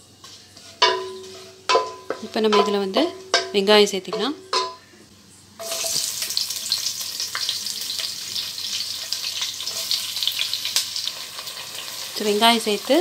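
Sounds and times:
spatula stirring: 0:00.1 - 0:03.6
onions sizzling in fat: 0:05.6 - 0:13.0.

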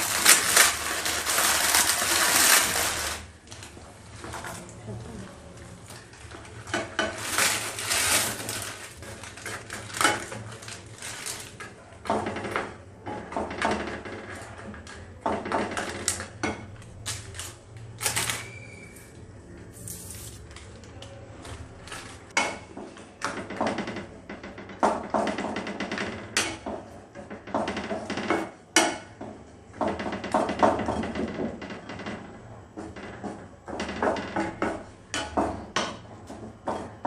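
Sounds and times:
plastic packet crinkling: 0:00.0 - 0:04.7, 0:07.2 - 0:11.7.

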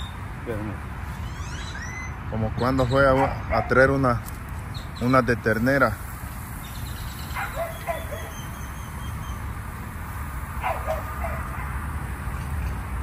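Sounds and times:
dog barking: 0:03.2 - 0:03.8, 0:07.4 - 0:08.4, 0:10.6 - 0:11.8.

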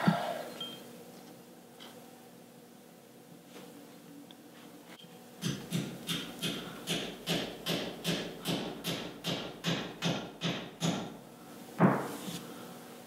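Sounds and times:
hammer tapping metal: 0:05.4 - 0:11.1.

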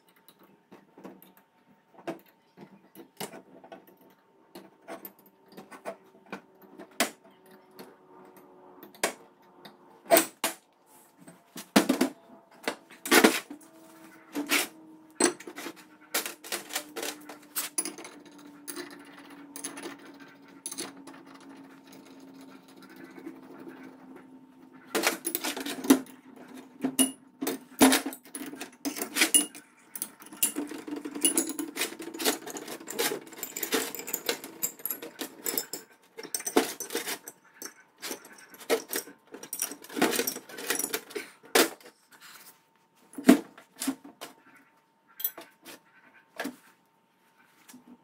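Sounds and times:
metal parts clattering on workbench: 0:14.4 - 0:23.2, 0:24.9 - 0:41.9.

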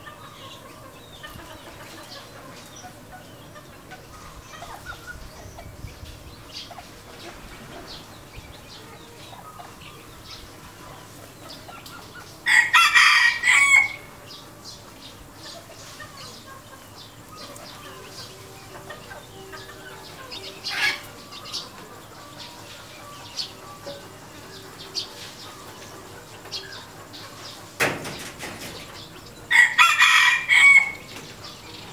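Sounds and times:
chickens clucking: 0:00.0 - 0:31.9
rooster crowing: 0:12.4 - 0:14.1, 0:29.5 - 0:31.1.

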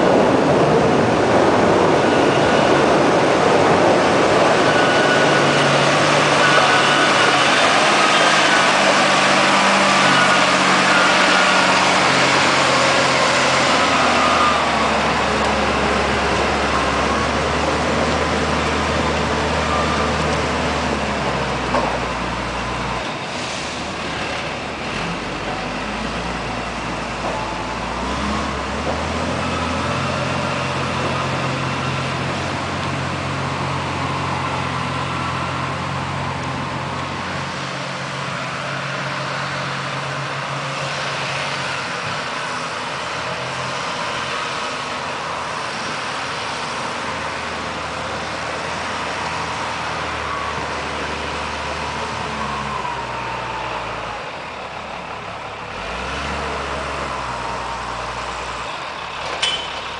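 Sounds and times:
diesel engine running: 0:00.0 - 0:59.9.

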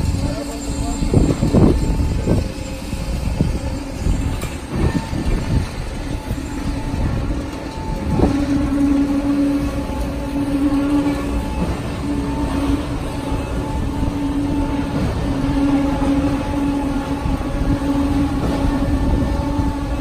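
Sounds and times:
concrete pump machinery drone: 0:00.0 - 0:20.0.

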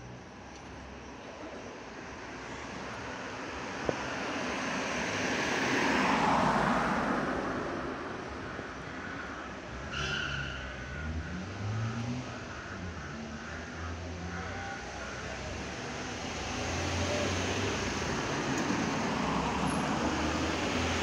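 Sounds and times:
car passing by: 0:03.7 - 0:10.1, 0:10.9 - 0:21.0.

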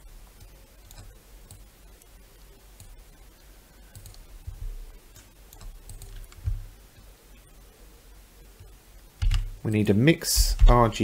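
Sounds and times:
computer mouse clicks: 0:03.9 - 0:06.6
soft low thumps: 0:10.3 - 0:11.0.

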